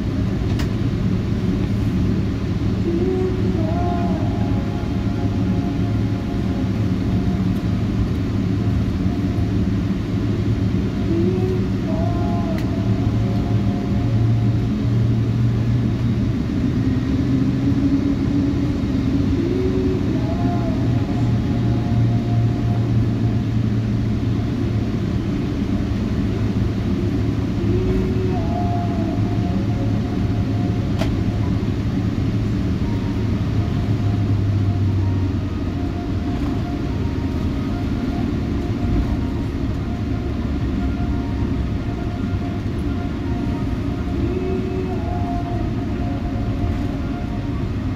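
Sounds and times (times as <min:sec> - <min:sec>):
airplane cabin hum: 0:00.0 - 0:47.9
faint wavering tone: 0:02.8 - 0:10.0, 0:27.5 - 0:47.9.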